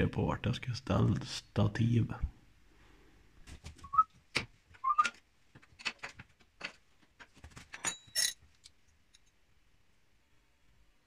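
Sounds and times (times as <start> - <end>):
metal spanners clinking: 7.7 - 8.6.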